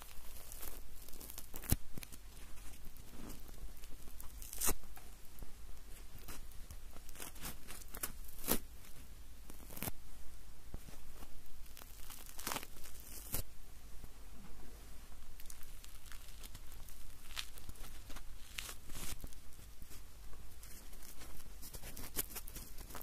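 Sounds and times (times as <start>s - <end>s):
marshmallows tearing apart: 0.0s - 5.2s, 6.2s - 8.7s, 9.5s - 10.0s, 11.6s - 13.5s, 15.4s - 19.6s, 20.6s - 23.0s.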